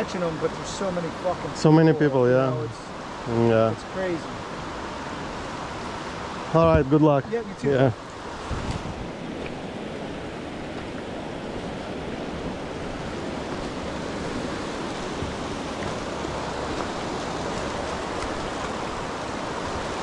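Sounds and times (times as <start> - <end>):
water rushing at shoreline: 0.0 - 20.0
wind on microphone: 8.1 - 20.0.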